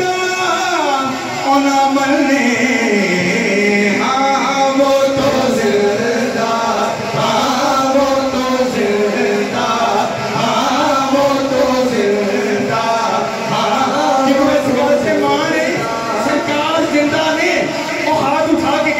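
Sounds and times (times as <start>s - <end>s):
man singing into a microphone: 0.0s - 18.9s.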